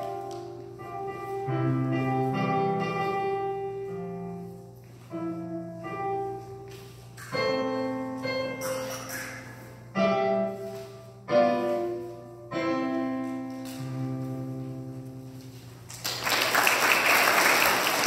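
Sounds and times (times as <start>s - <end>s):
electronic keyboard piano chords: 0.0s - 15.8s
audience applause: 15.9s - 18.0s.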